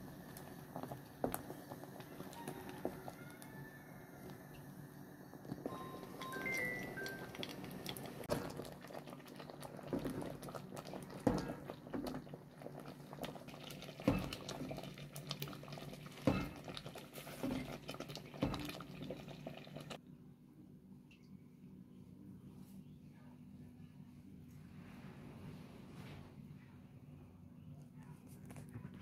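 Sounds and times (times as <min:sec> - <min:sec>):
thick stew bubbling in a pot: 0:00.0 - 0:20.0
wooden spoon knocking on pot: 0:14.0 - 0:14.8, 0:16.1 - 0:17.8, 0:18.4 - 0:18.8.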